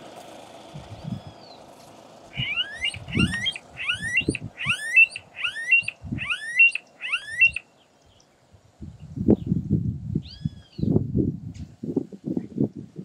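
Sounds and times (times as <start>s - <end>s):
bird calling with rising whistles: 1.1s - 1.7s, 2.3s - 8.2s, 10.2s - 10.8s.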